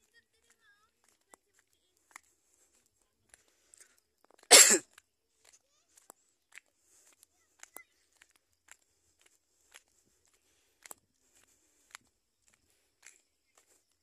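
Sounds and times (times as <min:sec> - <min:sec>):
faint ticks: 0:00.4 - 0:13.9
person coughing: 0:04.5 - 0:04.9.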